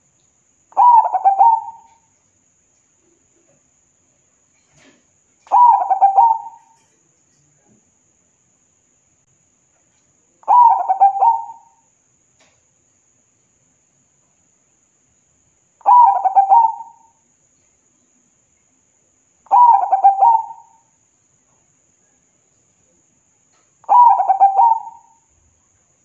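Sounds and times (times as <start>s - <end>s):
dove cooing: 0.8s - 2.0s, 5.4s - 6.9s, 10.4s - 11.8s, 15.8s - 17.1s, 19.5s - 20.8s, 23.8s - 25.2s.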